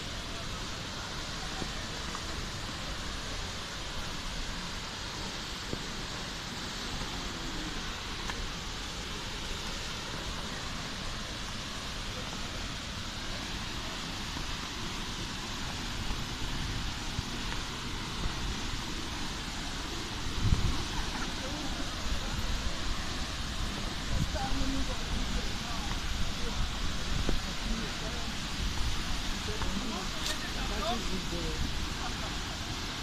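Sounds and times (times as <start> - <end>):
waterfall rushing: 0.0 - 33.0.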